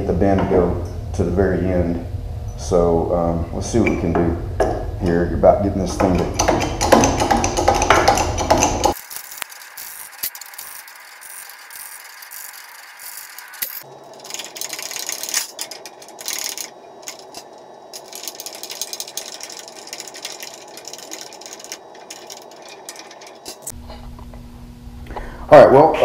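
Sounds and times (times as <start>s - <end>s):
steady hum: 0.0s - 26.0s
metal clicking and rattling: 5.9s - 23.8s.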